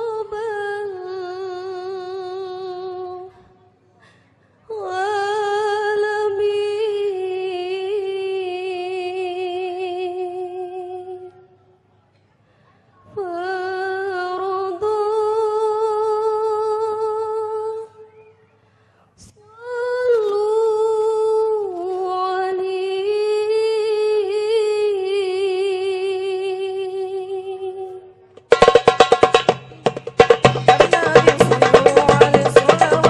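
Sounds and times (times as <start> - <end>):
solo voice singing: 30.7 - 33.0.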